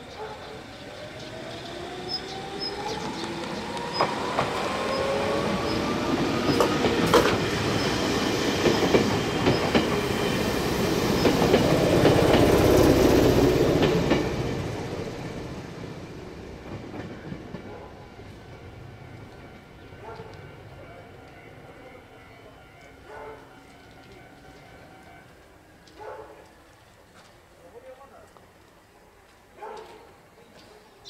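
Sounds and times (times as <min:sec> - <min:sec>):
rumble of passing train cars: 0:00.0 - 0:31.0
electric train motor whine: 0:00.6 - 0:15.0
wheels clicking over rail joints: 0:01.0 - 0:07.9.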